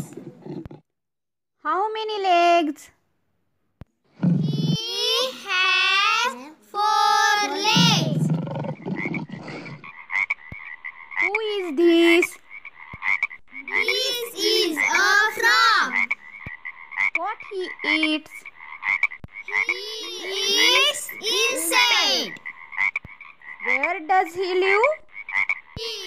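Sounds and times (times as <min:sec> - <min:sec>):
children's voices: 0:04.4 - 0:08.3, 0:13.6 - 0:16.2, 0:19.5 - 0:22.5, 0:25.8 - 0:26.0
frog croaking: 0:07.0 - 0:26.0.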